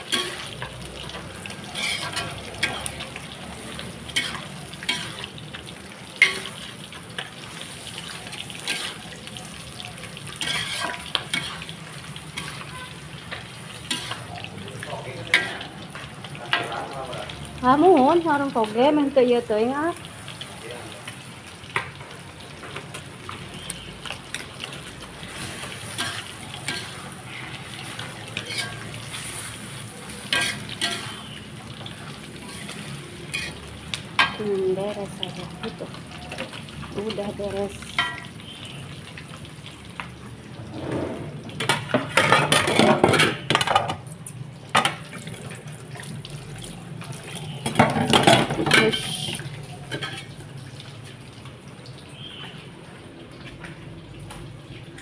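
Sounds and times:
dishes and utensils clattering: 0:00.0 - 0:03.2, 0:04.1 - 0:05.3, 0:06.2 - 0:06.6, 0:10.2 - 0:11.7, 0:15.3 - 0:15.6, 0:25.6 - 0:27.1, 0:27.9 - 0:29.1, 0:30.2 - 0:31.2, 0:38.0 - 0:38.3, 0:40.7 - 0:46.1, 0:47.6 - 0:50.4
metal spatula scraping a pan: 0:00.0 - 0:05.4, 0:06.2 - 0:09.1, 0:10.3 - 0:14.3, 0:25.3 - 0:31.4, 0:32.4 - 0:33.6, 0:47.6 - 0:50.3
vegetables sizzling in a wok: 0:00.0 - 0:55.0.

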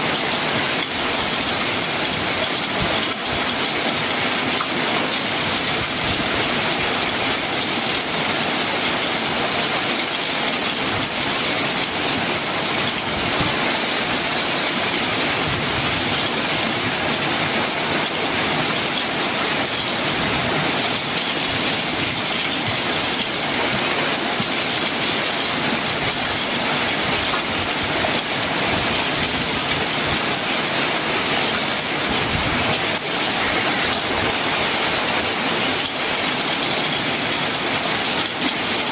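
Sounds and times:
heavy rain on a metal roof: 0:00.0 - 0:38.9.

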